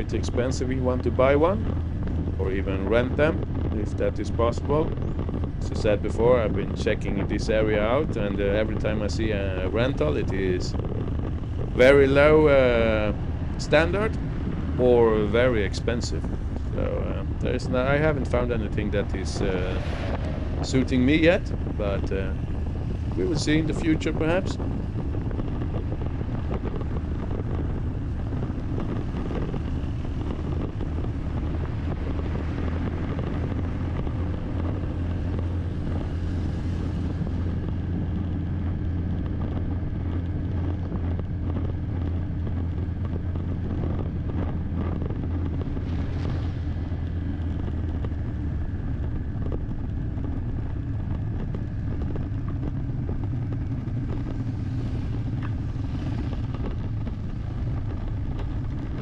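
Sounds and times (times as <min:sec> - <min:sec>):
car engine and tyre drone: 0:00.0 - 0:59.0
road hiss: 0:11.4 - 0:39.1, 0:53.6 - 0:58.1.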